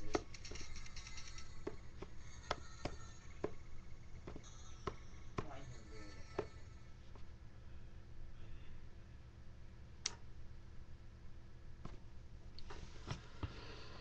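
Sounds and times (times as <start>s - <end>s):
fingers tapping controller pads: 0.0s - 5.6s.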